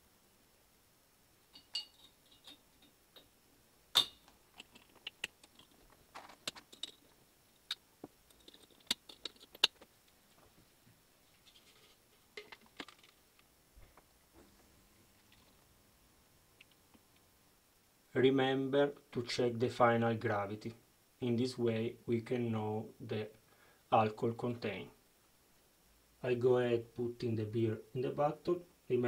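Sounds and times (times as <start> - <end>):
glass bottles knocking: 1.5 - 3.3, 4.0 - 4.2
ceramic bottle stoppers snapping: 1.6 - 2.6, 4.0 - 5.7.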